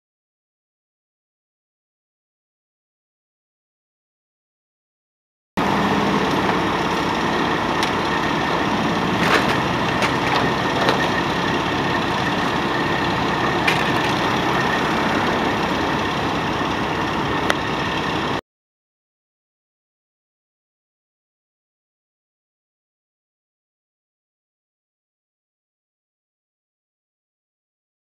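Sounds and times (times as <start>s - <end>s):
engine idling: 5.6s - 18.4s
road traffic: 5.6s - 18.4s.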